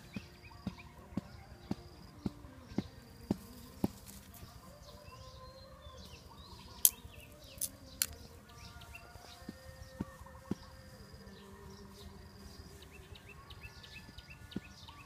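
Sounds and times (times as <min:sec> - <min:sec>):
birds chirping: 0:00.0 - 0:15.0
sharp clicks of trap sticks: 0:06.8 - 0:08.2.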